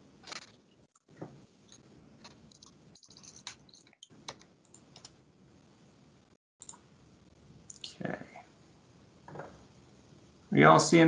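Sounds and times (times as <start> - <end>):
keyboard typing: 2.2 - 5.2.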